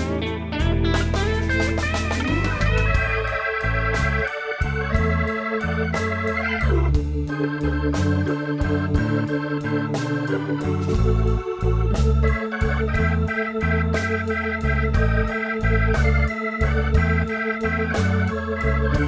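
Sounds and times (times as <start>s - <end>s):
organ-like keyboard chords: 0.0s - 19.0s
stepping bass line: 0.0s - 19.0s
drum hits: 1.0s - 5.4s.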